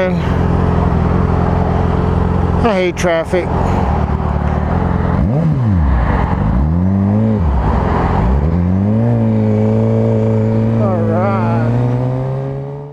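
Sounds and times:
motorcycle engine revving: 0.0 - 12.9.

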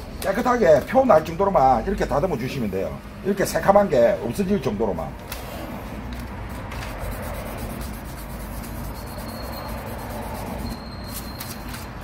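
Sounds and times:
sandpaper scrubbing: 6.6 - 10.7.

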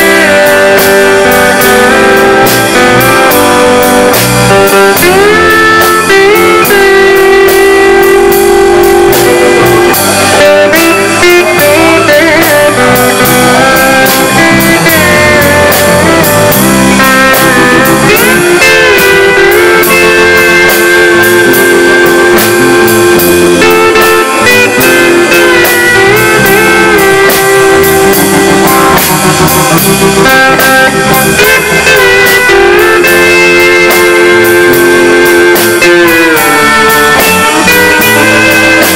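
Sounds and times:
country band playing live: 0.0 - 38.9
steel guitar sliding notes: 0.0 - 38.9.

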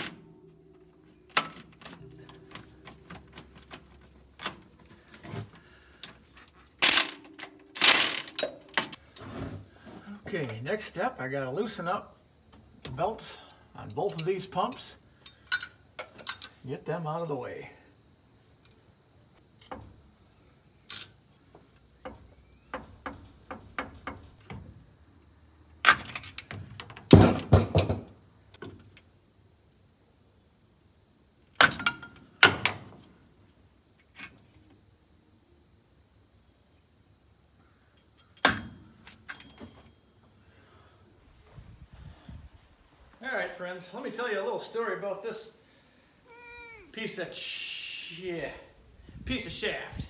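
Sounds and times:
metal tools clanking on metal: 0.0 - 0.5, 1.1 - 9.6, 12.9 - 16.6, 20.9 - 21.2, 27.1 - 28.1.

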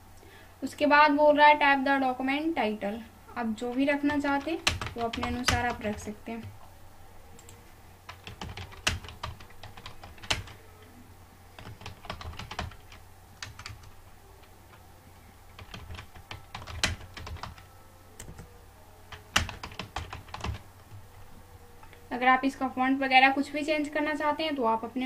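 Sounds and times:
typing on computer keyboard: 3.7 - 6.5, 7.4 - 10.6, 11.6 - 13.9, 15.6 - 18.5, 19.3 - 20.6.

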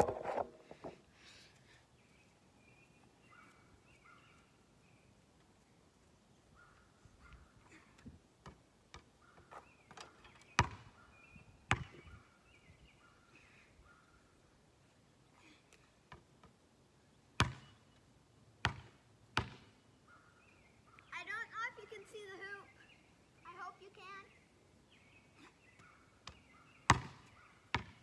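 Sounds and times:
faint bird chirps: 2.0 - 5.2, 9.2 - 14.4, 22.4 - 27.8
basketball bouncing on asphalt: 10.5 - 10.9, 11.7 - 12.0, 17.4 - 17.7, 18.6 - 19.7, 25.8 - 28.0.

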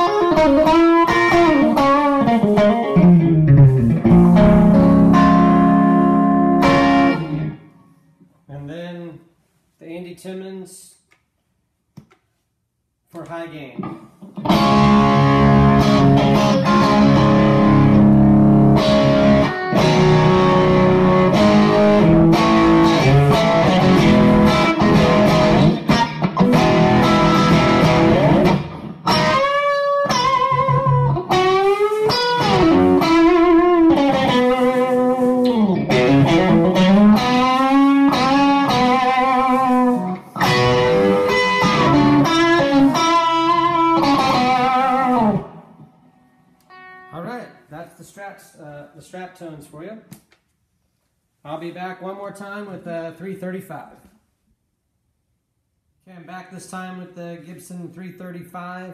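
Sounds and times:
electric guitar chords and lead lines: 0.0 - 7.9, 13.8 - 46.0, 46.6 - 47.2.

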